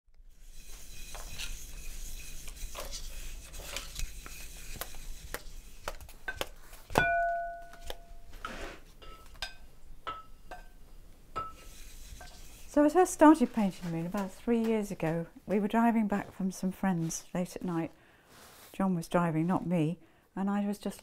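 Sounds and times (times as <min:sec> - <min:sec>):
scraping: 0:00.4 - 0:06.9, 0:11.4 - 0:15.2
loud ringing clink: 0:07.0 - 0:08.2.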